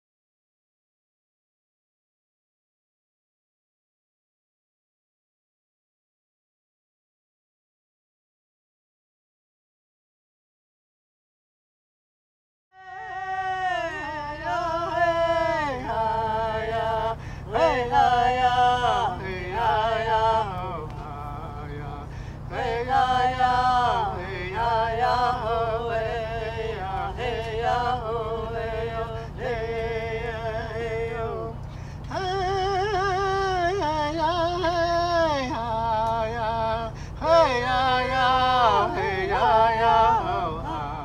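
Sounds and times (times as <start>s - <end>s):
chant in long held notes: 12.8s - 41.0s
steady low hum: 12.8s - 41.0s.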